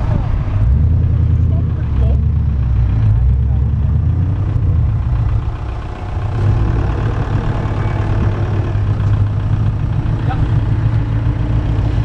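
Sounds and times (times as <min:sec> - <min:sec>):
car driving off slowly: 0:00.0 - 0:12.0
car engines idling: 0:00.0 - 0:12.0.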